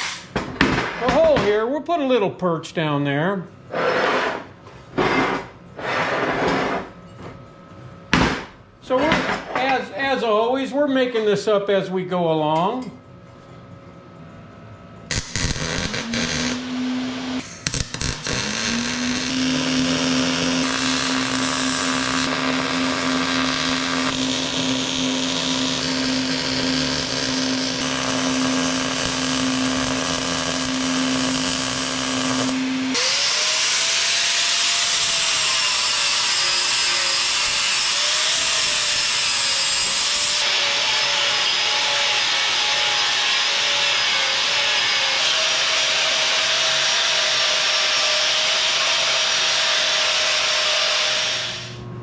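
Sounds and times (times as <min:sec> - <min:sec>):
welding arc hissing: 0:15.1 - 0:33.8, 0:47.3 - 0:51.8
angle grinder grinding steel: 0:15.1 - 0:51.8.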